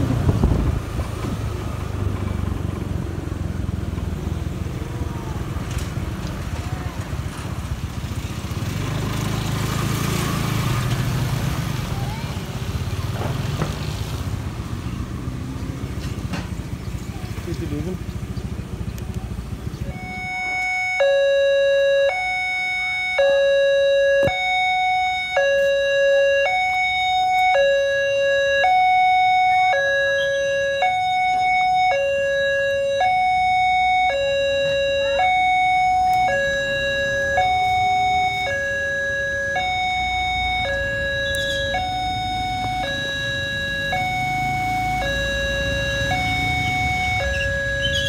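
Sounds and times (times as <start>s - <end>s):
two-tone crossing alarm: 19.8s - 48.0s.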